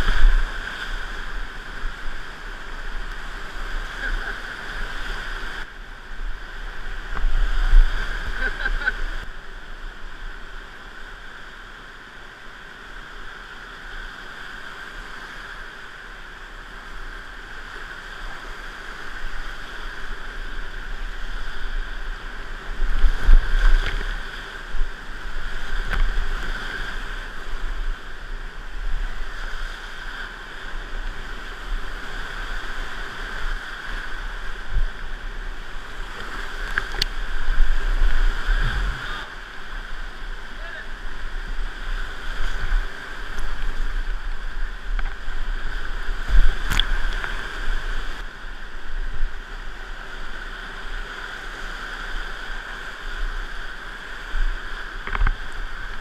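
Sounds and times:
rushing whitewater: 0:00.0 - 0:56.0
water splashing: 0:31.9 - 0:40.5.

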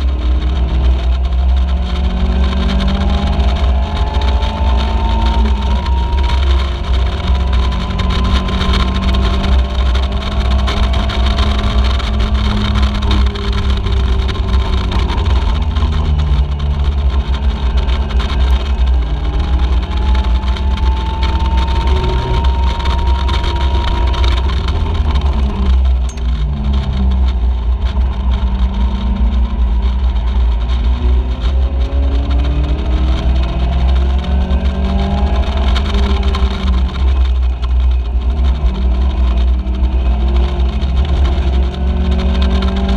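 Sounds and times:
race car engine revving: 0:00.0 - 0:42.9
wind rumble on microphone: 0:00.0 - 0:42.9.

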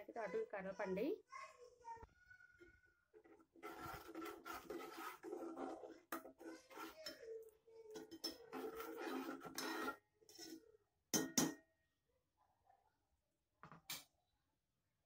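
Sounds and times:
ladle scraping metal pot: 0:03.2 - 0:10.7.

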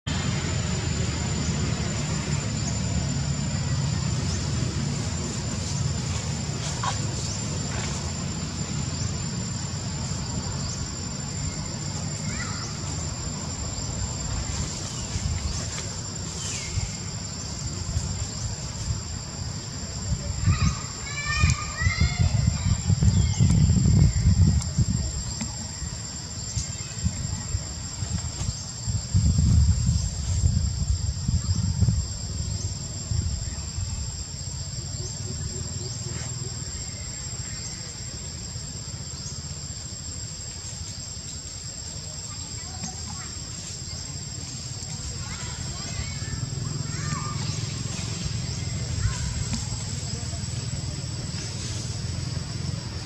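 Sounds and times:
insects buzzing: 0:00.1 - 0:53.0.

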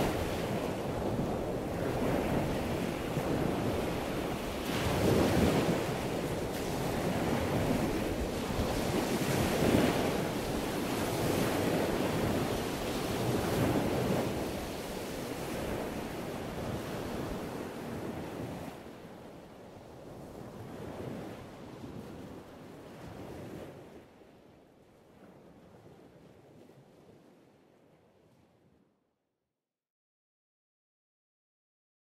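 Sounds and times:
ocean waves washing in: 0:00.0 - 0:19.4.

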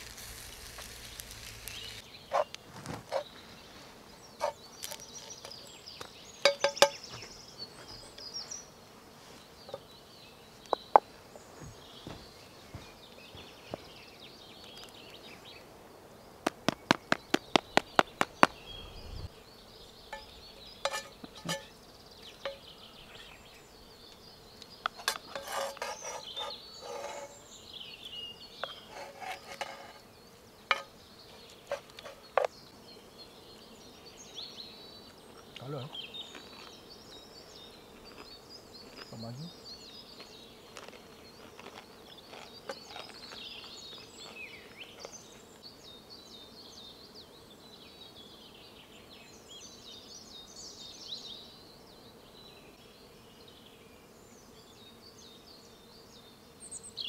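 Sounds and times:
faint insect buzz: 0:00.0 - 0:57.0
wooden utensil tapping on stone: 0:06.4 - 0:07.0, 0:20.1 - 0:21.7, 0:22.4 - 0:22.7, 0:24.8 - 0:27.3, 0:30.7 - 0:30.9
wooden spoon scraping frying pan: 0:20.1 - 0:21.7, 0:25.0 - 0:27.4, 0:28.6 - 0:30.1, 0:30.7 - 0:30.9.

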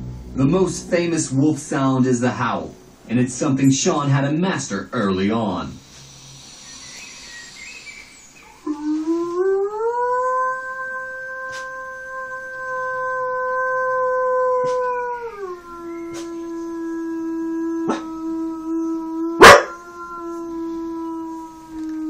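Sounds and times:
dog howling: 0:08.4 - 0:22.0.

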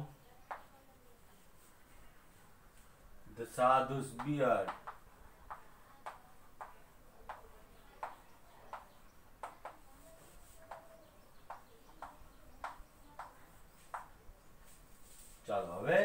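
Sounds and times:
chalk tapping on chalkboard: 0:04.2 - 0:14.2.

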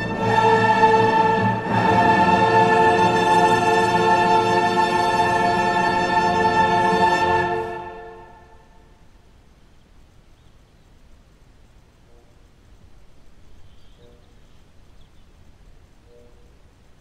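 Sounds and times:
music of sustained notes: 0:00.0 - 0:08.9
faint background hiss: 0:00.0 - 0:17.0.

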